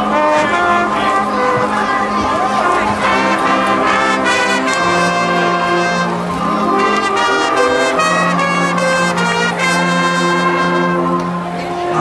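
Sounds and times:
marching band brass chords: 0.0s - 12.0s.

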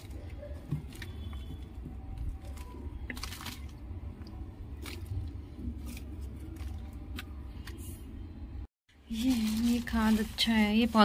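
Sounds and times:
compost pattering on soil: 9.1s - 11.0s.

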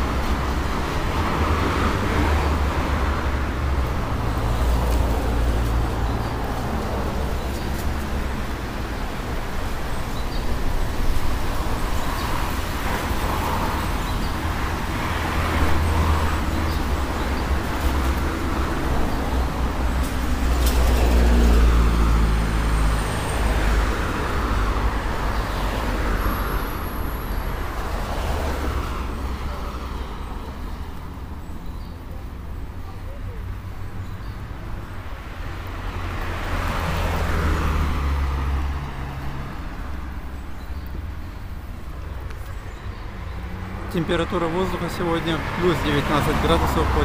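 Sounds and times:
cars driving past: 0.0s - 31.4s, 33.7s - 47.0s.

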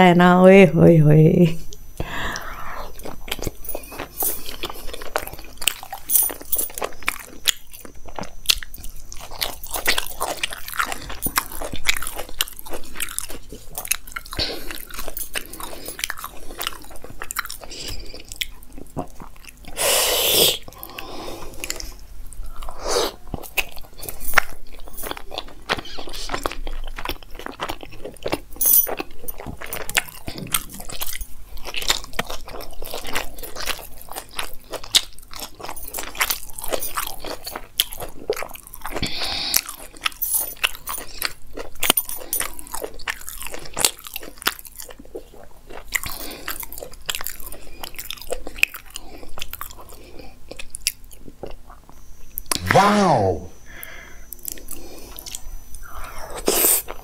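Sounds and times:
person chewing food: 1.7s - 57.0s.

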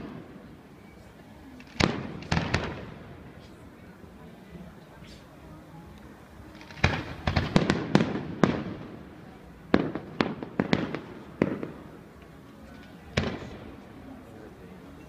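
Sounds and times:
fireworks bangs: 1.6s - 3.3s, 6.5s - 12.0s, 12.8s - 13.9s.

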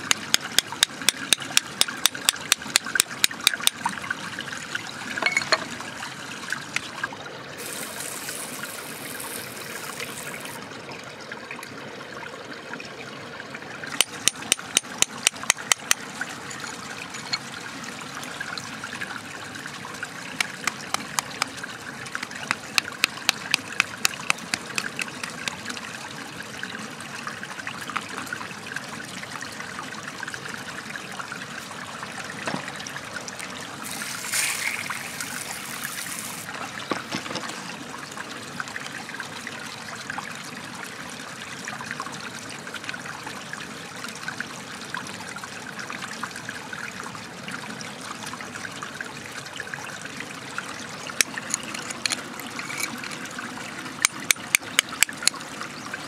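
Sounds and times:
water trickling: 0.0s - 41.5s, 47.4s - 56.0s
water splashing: 33.8s - 37.8s.

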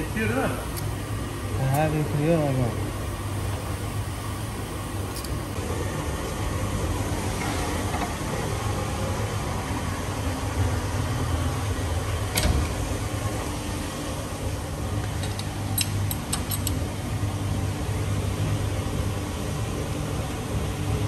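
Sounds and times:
workshop machinery hum: 0.0s - 21.0s
metal clicks of valve spring compressor: 15.0s - 16.8s.

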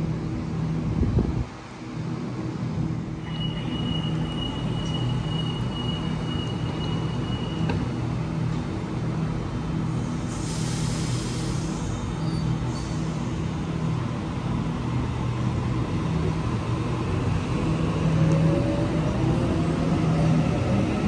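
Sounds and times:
electric train humming: 9.6s - 21.0s
hiss of released air: 9.9s - 13.6s.

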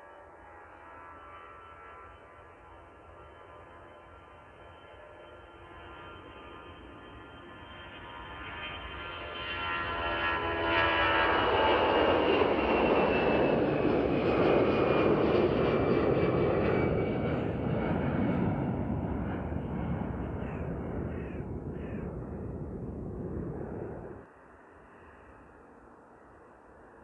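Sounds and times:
jet airliner engines roaring: 0.0s - 27.0s.

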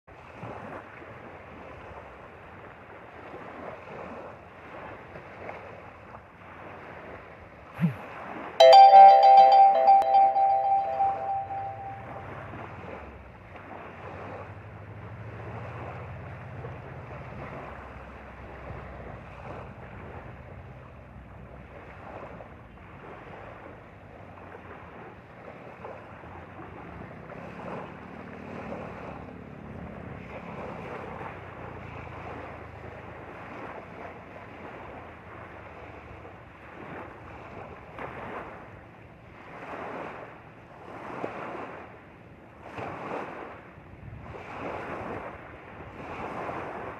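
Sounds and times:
waves lapping at shore: 0.1s - 46.9s
wind on microphone: 43.8s - 46.9s.

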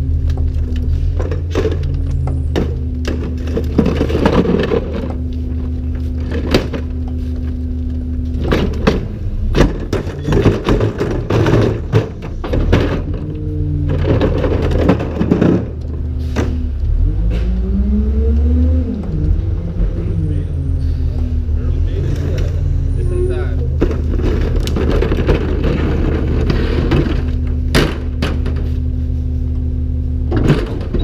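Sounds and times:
cart clanking and banging: 0.0s - 17.6s, 19.0s - 28.9s, 30.2s - 31.0s
garbage truck cart tipper lifting: 1.0s - 5.2s, 8.3s - 16.6s, 23.6s - 28.8s, 30.2s - 31.0s
engine revving: 13.2s - 27.5s
diesel engine idling: 19.0s - 30.9s.

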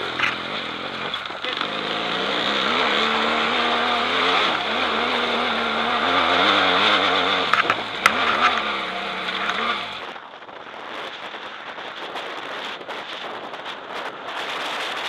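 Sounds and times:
motorcycle engine under load: 0.0s - 10.2s
wind noise and rustling: 0.0s - 15.0s.

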